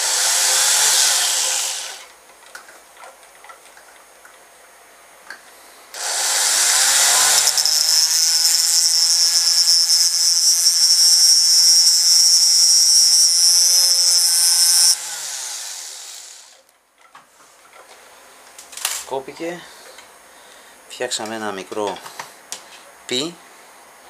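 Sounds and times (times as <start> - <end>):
rotary tool grinding wire: 0.0 - 2.1, 6.0 - 16.6.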